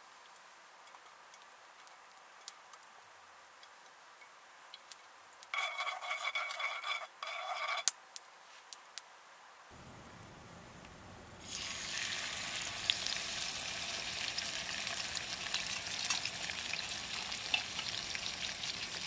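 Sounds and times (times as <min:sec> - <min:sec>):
cooking utensils tapping and clinking: 0:13.8 - 0:19.0.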